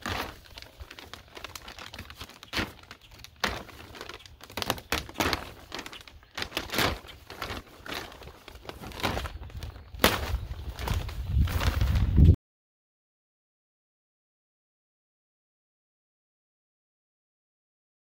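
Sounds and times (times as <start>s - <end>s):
plastic sheeting crinkling: 0.0s - 12.4s.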